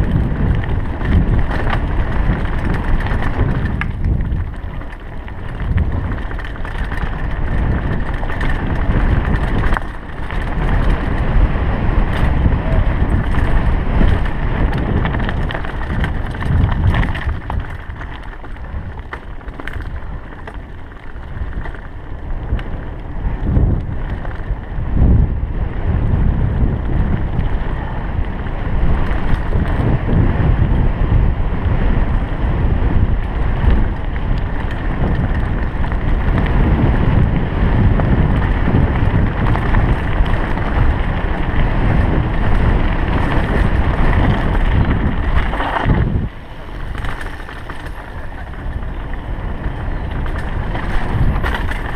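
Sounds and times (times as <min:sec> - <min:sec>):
bike clicks and rattles: 0:00.0 - 0:51.9
bike tyres rolling over gravel: 0:00.0 - 0:51.9
wind rumbling on microphone: 0:00.0 - 0:51.9.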